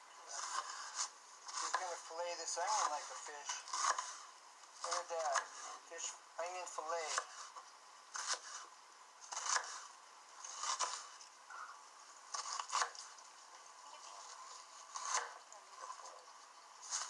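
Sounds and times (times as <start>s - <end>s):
knife slicing onion on board: 0.3s - 2.0s, 2.6s - 5.8s, 7.0s - 11.2s, 12.3s - 13.1s, 14.9s - 15.4s.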